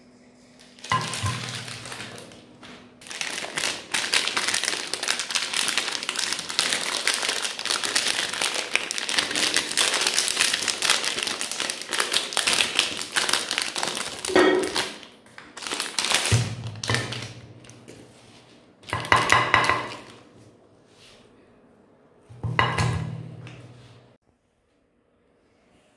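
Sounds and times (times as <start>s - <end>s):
plastic wrapper crinkling: 0.6s - 17.9s, 18.8s - 20.2s.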